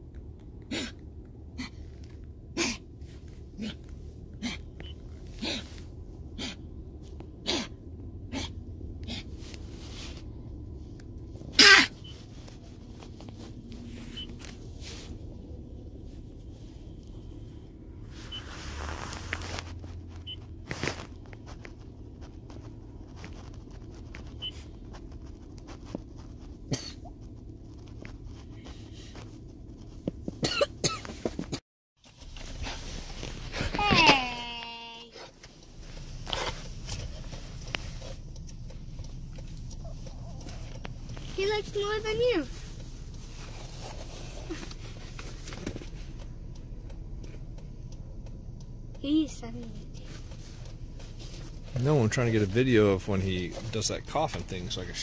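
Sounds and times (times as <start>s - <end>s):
puppy coughing: 0.7s - 1.8s, 2.5s - 2.8s, 3.6s - 6.6s, 7.4s - 9.3s, 11.5s - 12.0s, 26.6s - 27.2s, 30.4s - 31.2s.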